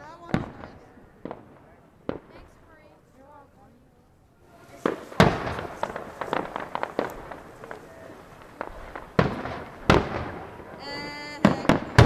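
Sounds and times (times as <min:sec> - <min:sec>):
firework crackling pops: 0:00.0 - 0:03.2, 0:04.5 - 0:12.0
firework shells banging: 0:04.5 - 0:12.0.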